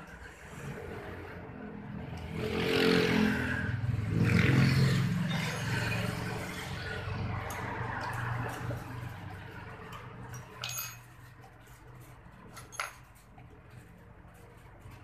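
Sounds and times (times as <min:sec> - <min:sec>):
wrench clinking on metal: 0:09.8 - 0:11.8, 0:12.5 - 0:13.5.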